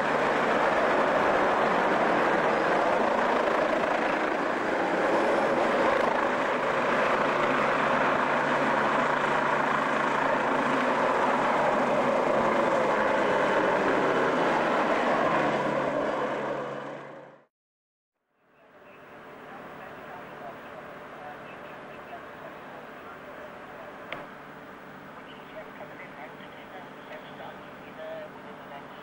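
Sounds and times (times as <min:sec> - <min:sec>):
helicopter rotor and engine: 0:00.0 - 0:17.5, 0:18.6 - 0:29.0.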